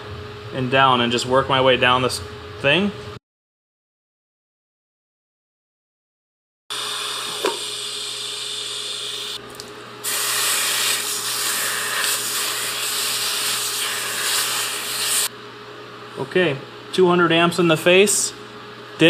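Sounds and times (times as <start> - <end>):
welding arc hissing: 7.0 - 9.4, 10.0 - 15.3
wet rag sizzling on hot metal: 10.0 - 15.3.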